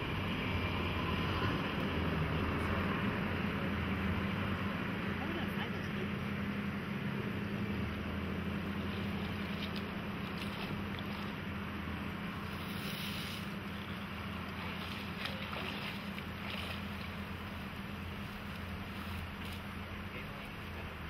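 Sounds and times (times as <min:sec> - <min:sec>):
low hum: 0:00.0 - 0:21.0
river flowing: 0:00.0 - 0:21.0
branches rustling: 0:08.6 - 0:19.9.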